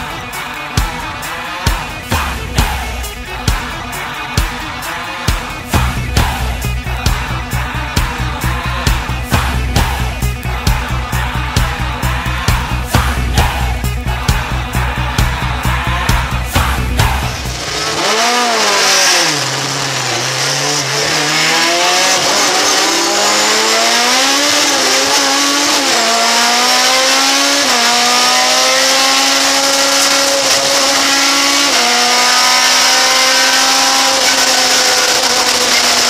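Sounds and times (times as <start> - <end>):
car engine accelerating through gears: 16.6 - 36.0.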